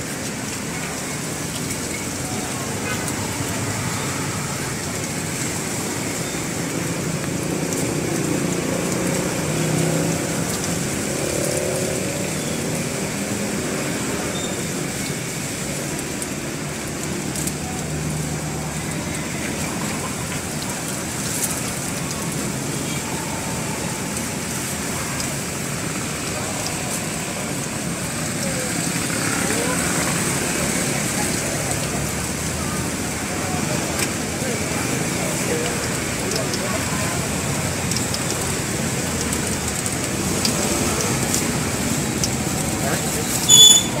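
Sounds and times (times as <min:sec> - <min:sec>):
low rumble of street traffic: 0:00.0 - 0:44.0
batter sizzling in hot oil: 0:00.1 - 0:44.0.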